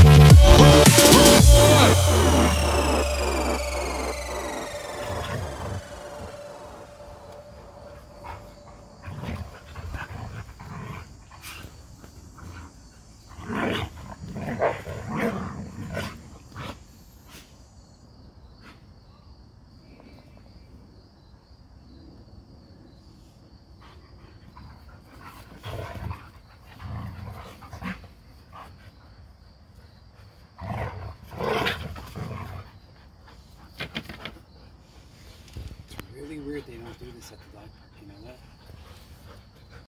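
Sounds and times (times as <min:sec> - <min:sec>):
dogs growling: 0:04.4 - 0:16.9, 0:24.7 - 0:28.7, 0:30.6 - 0:32.8.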